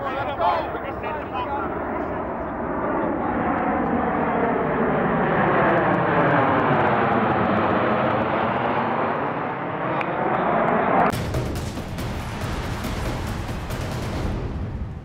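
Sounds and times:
music: 11.1s - 15.0s.

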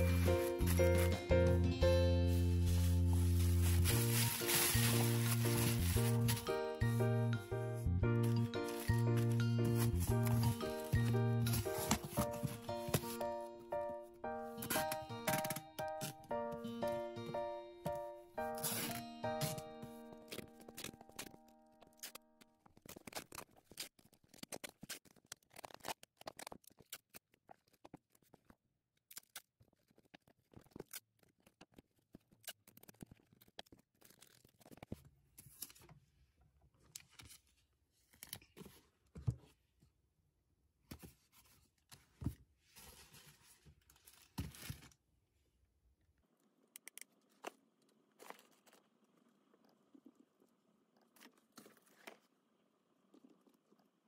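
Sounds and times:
cardboard box handled: 2.2s - 6.4s, 8.6s - 13.2s
packing tape pulled and torn: 2.3s - 6.5s, 14.6s - 16.2s, 18.4s - 19.6s, 20.2s - 27.8s, 29.1s - 35.9s.

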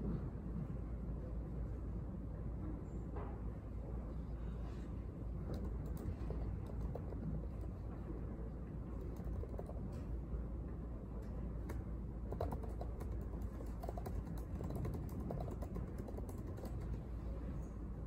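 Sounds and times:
low room hum: 0.0s - 18.0s
laptop keyboard typing: 5.5s - 7.8s, 8.9s - 10.1s, 11.6s - 17.3s.

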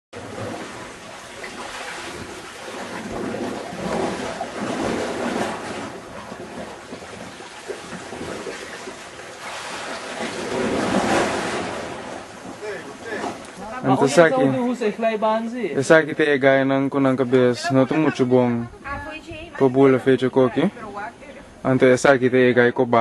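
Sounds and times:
wind: 0.1s - 23.0s
sea surf: 0.2s - 16.0s.

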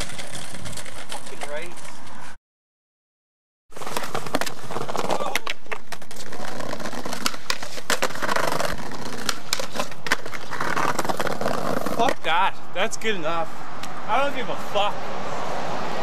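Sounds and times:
skateboard grinding on curb: 0.0s - 2.2s, 3.7s - 12.3s
skateboard wheels rolling: 0.0s - 2.4s, 3.7s - 12.3s.

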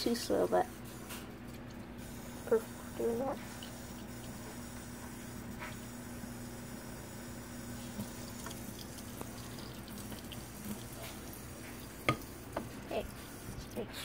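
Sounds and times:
water trickling from a tap: 3.4s - 4.8s, 7.6s - 13.9s.

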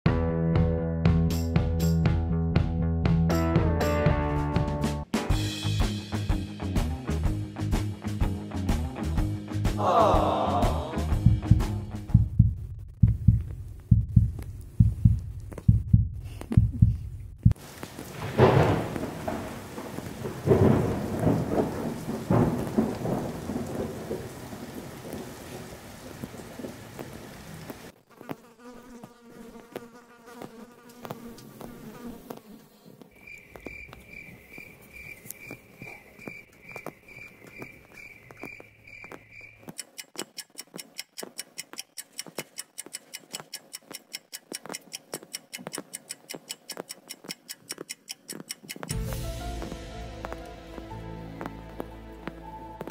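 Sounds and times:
clock ticking fast: 11.1s - 17.6s, 39.6s - 49.7s
thunderclap: 17.5s - 27.3s
rain: 17.6s - 28.0s, 48.9s - 52.9s.

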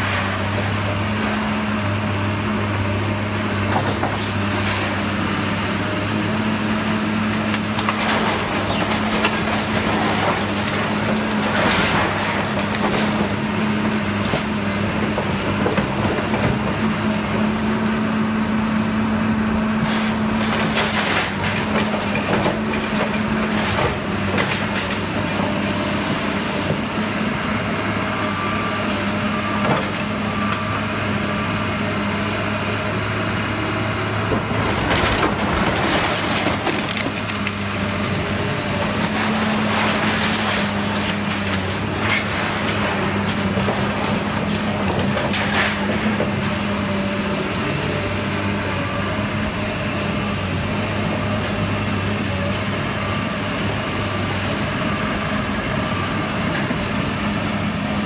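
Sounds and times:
excavator diesel engine running: 0.0s - 58.0s
debris crunching and crashing: 3.6s - 17.6s, 19.3s - 27.0s, 34.1s - 48.4s.

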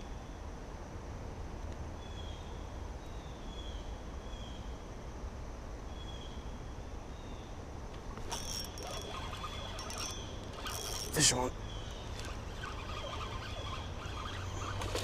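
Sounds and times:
faint high chirps: 8.3s - 15.0s.

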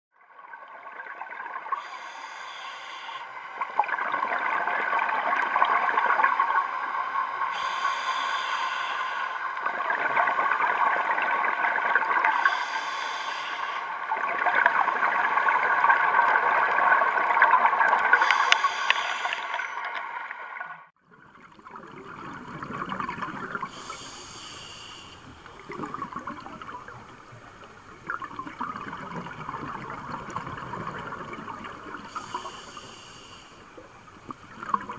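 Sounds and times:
regulator hiss on inhale: 1.7s - 3.6s, 7.5s - 9.6s, 12.2s - 14.1s, 18.1s - 19.8s, 23.6s - 25.8s, 31.8s - 34.1s
exhaled bubbles rushing: 3.6s - 7.6s, 9.6s - 12.4s, 14.0s - 18.3s, 20.6s - 24.4s, 25.2s - 32.5s, 33.7s - 34.9s.

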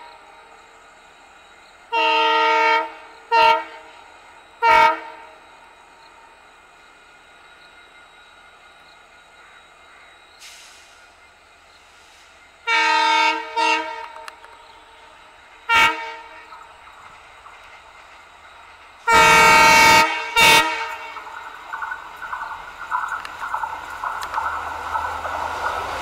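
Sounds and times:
train rumble and clatter: 0.0s - 26.0s
locomotive horn blasts: 1.9s - 4.0s, 4.6s - 5.3s, 12.7s - 14.4s, 15.7s - 16.6s, 19.0s - 21.4s.

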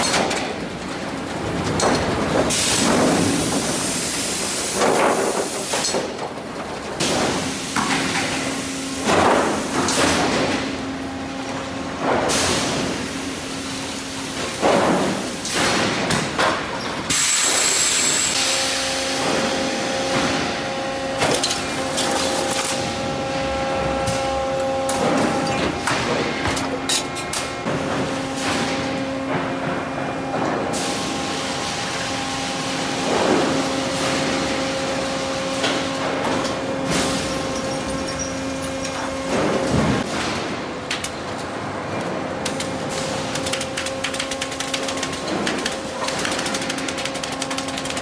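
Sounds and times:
steady machine hum: 17.5s - 40.8s.

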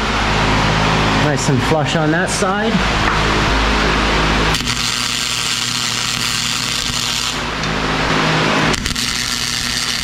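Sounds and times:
wire-feed welder crackling: 4.5s - 7.8s, 8.6s - 10.0s.

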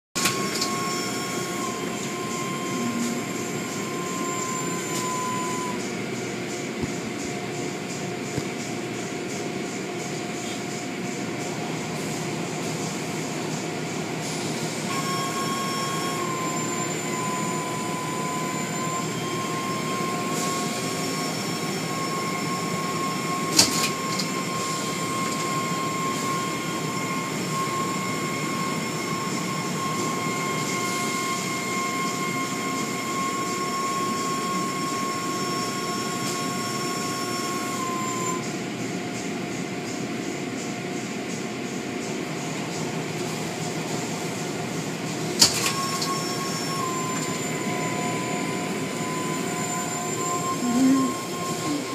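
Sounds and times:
car wash machinery rushing: 0.2s - 38.2s
high whine: 0.2s - 51.9s.

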